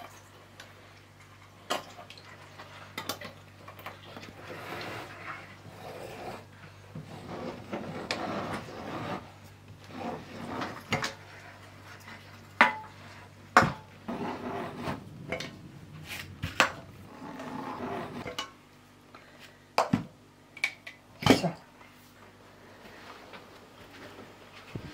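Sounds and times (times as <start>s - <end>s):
lid seamer scraping: 14.1s - 18.4s.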